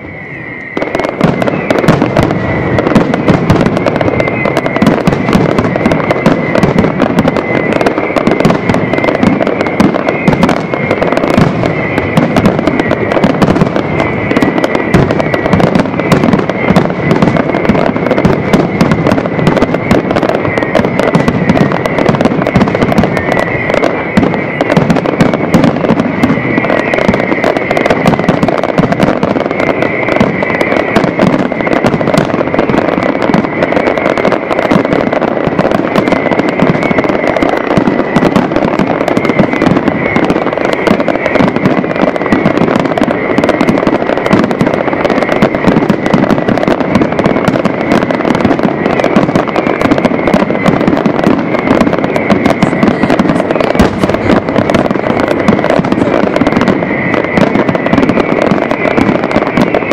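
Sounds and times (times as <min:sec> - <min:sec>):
fireworks bursting and crackling: 0:00.0 - 0:59.9
steady high tone: 0:00.0 - 0:59.9.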